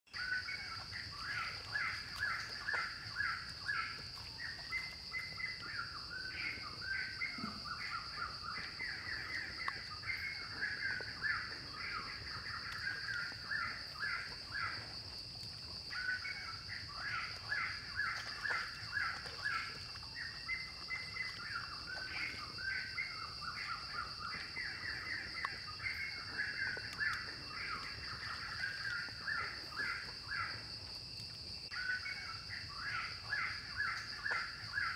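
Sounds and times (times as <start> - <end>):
birds chattering: 0.2 - 15.1.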